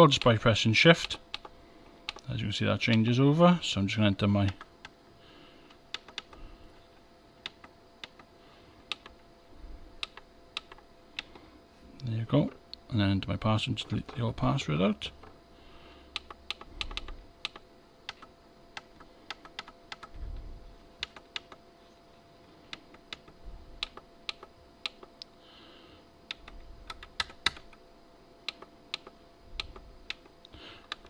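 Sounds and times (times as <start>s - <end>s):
keypad buttons clicking: 1.0s - 1.5s, 5.9s - 6.4s, 7.4s - 8.3s, 8.9s - 9.2s, 10.0s - 11.4s, 16.1s - 20.1s, 21.0s - 21.6s, 26.3s - 27.8s, 28.5s - 30.3s.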